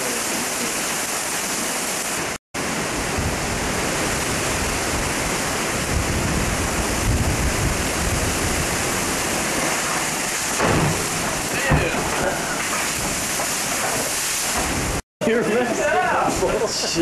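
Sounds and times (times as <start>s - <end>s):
hurricane wind and heavy rain: 0.0s - 17.0s
wind buffeting microphone: 2.8s - 9.6s.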